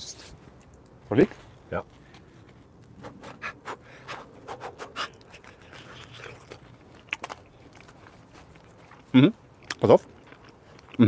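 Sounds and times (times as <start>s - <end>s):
person chewing crunchy food: 5.0s - 11.0s.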